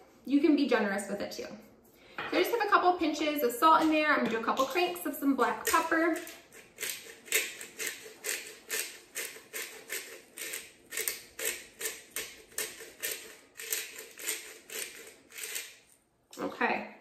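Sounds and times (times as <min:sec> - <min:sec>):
pepper grinder grinding: 0:04.6 - 0:16.0.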